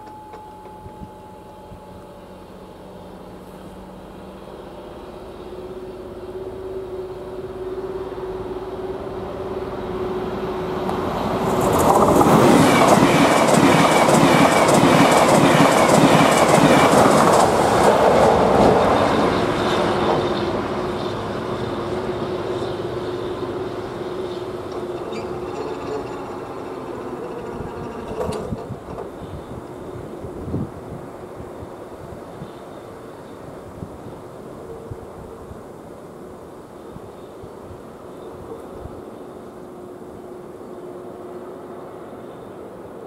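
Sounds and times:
level crossing warning bell: 0:00.0 - 0:03.2
train passing at speed: 0:00.0 - 0:43.0
wheels clattering over rails: 0:10.9 - 0:20.2, 0:24.4 - 0:30.1.

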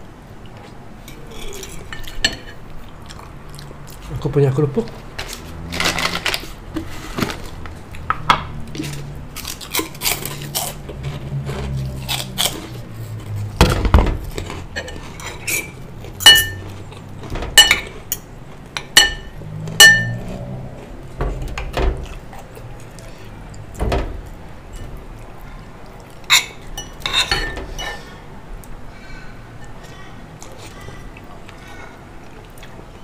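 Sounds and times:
cutlery scraping on ceramic: 0:14.3 - 0:17.0, 0:18.8 - 0:20.4, 0:26.3 - 0:28.1
glass jar clinking: 0:16.2 - 0:16.6, 0:19.0 - 0:20.2.

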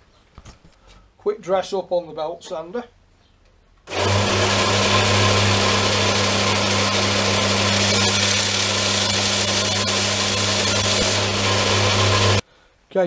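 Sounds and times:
belt sander motor hum: 0:03.9 - 0:12.4
metal grinding on sander belt: 0:03.9 - 0:12.4.

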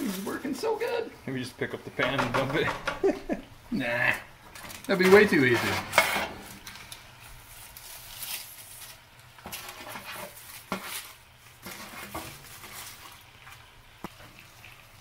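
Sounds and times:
spatula scraping foil: 0:00.0 - 0:01.0, 0:04.6 - 0:13.6
aluminium foil crinkling: 0:00.0 - 0:01.2, 0:04.5 - 0:15.0.

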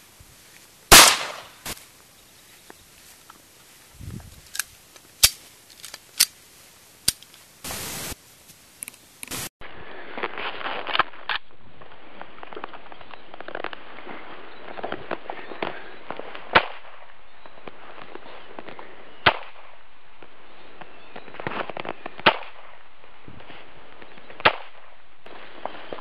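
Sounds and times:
rifle firing single shots: 0:00.9 - 0:01.8
crackling clicks: 0:04.4 - 0:06.4, 0:07.0 - 0:09.5.

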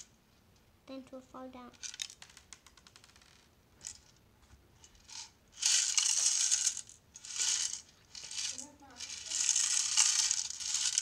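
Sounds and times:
plastic pieces rattling in drum: 0:01.8 - 0:03.3, 0:05.1 - 0:11.0.

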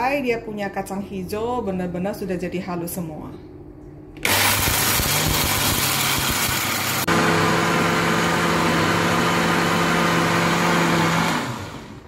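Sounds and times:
blender running: 0:04.2 - 0:12.0.

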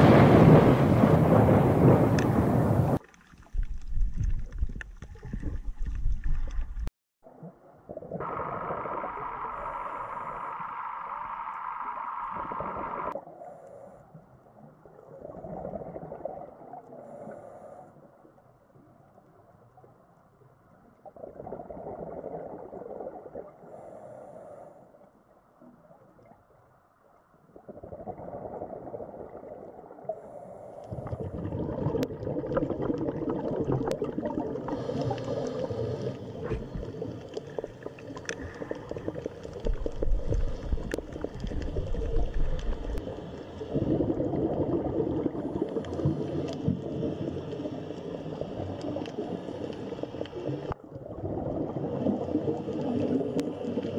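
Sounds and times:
underwater bubbling and gurgling: 0:00.0 - 0:53.9.

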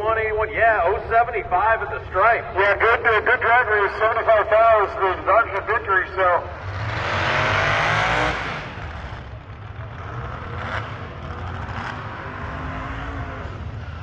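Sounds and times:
drag racing car engine revving: 0:06.3 - 0:14.0.

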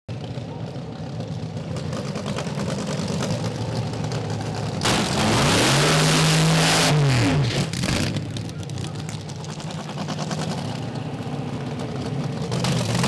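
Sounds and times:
dragster engine revving: 0:01.8 - 0:08.8.

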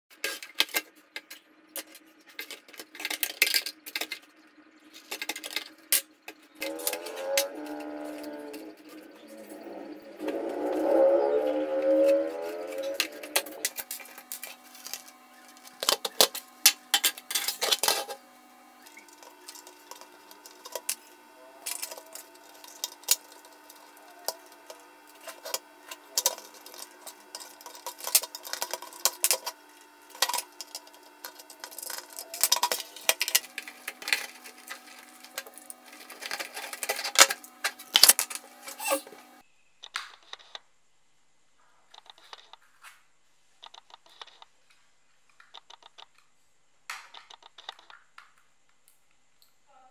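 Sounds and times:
plastic clock parts clicking: 0:18.9 - 0:38.4, 0:43.6 - 0:44.5, 0:45.3 - 0:46.3, 0:46.9 - 0:48.0.

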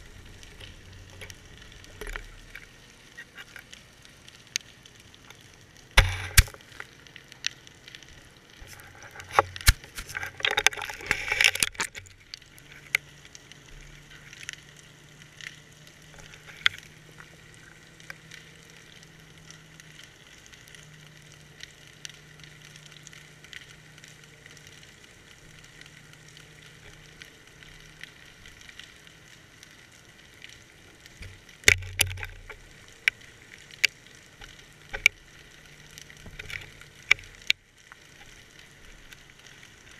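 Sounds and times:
crackling: 0:00.0 - 0:39.9
underwater clicks and knocks: 0:06.0 - 0:06.6, 0:08.6 - 0:13.0, 0:31.2 - 0:33.2, 0:33.8 - 0:35.2, 0:36.2 - 0:37.6.

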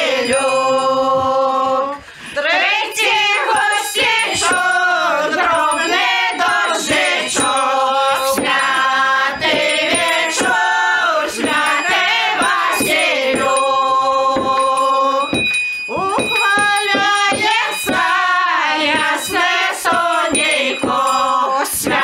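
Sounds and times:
group singing a carol: 0:00.0 - 0:22.0.

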